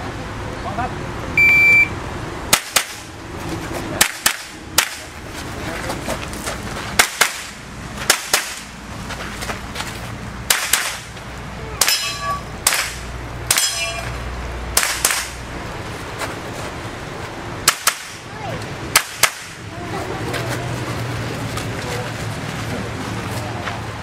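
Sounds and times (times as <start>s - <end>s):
steel target ringing: 11.8s - 14.3s.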